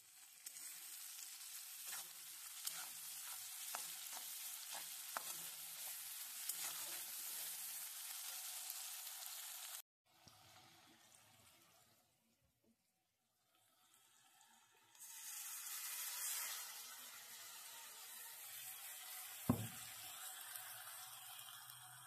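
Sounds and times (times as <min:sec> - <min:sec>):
onions sizzling in oil: 0:00.0 - 0:11.8, 0:13.6 - 0:22.0
metal spatula scraping pan: 0:01.6 - 0:07.4.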